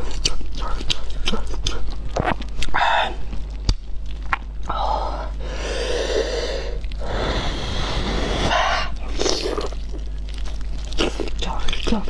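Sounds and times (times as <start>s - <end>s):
mouth noises biting food: 0.0s - 4.7s
person blowing out breaths: 4.7s - 9.0s.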